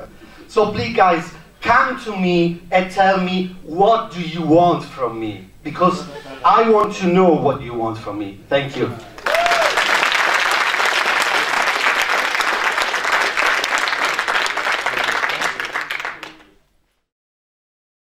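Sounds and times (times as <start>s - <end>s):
audience applauding: 9.1s - 16.6s.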